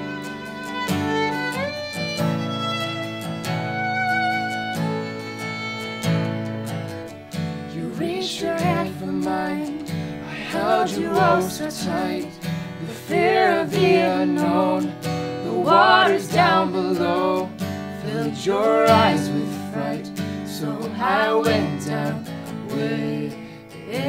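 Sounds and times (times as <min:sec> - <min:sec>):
strummed acoustic guitar: 0:00.0 - 0:24.0
woman and man singing: 0:07.7 - 0:24.0.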